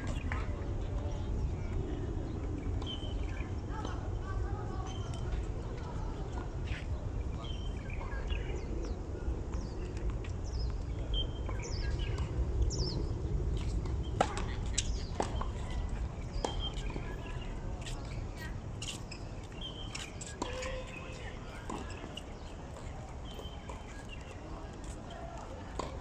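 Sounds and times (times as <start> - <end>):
steady low rumble: 0.0 - 19.8.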